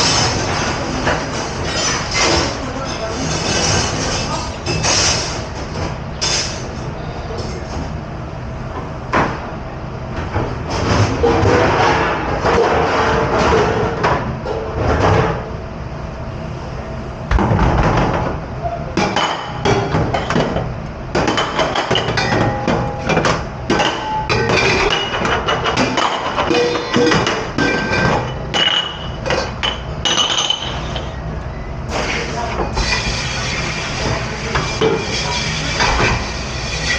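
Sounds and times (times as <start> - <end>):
dishes and utensils clattering: 0.0 - 6.7, 19.0 - 31.2.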